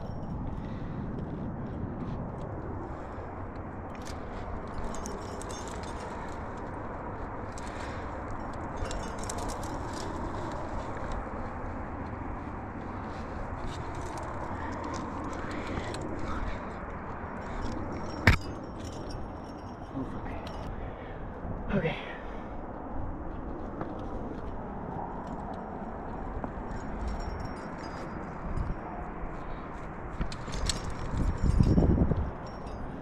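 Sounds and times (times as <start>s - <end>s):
metal climbing gear jangling: 0.0s - 1.8s, 2.4s - 21.3s, 23.4s - 33.0s
steady background rush: 0.0s - 33.0s
sharp metal clack: 18.0s - 19.2s.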